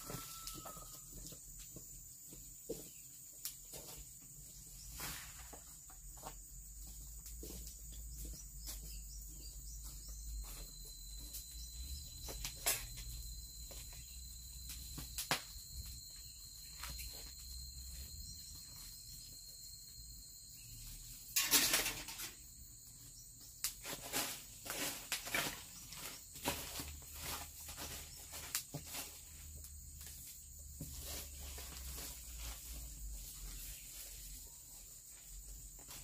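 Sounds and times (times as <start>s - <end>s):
high-pitched insect drone: 0.0s - 1.4s, 6.2s - 36.0s
rustling scrape: 4.8s - 5.8s, 23.8s - 29.5s.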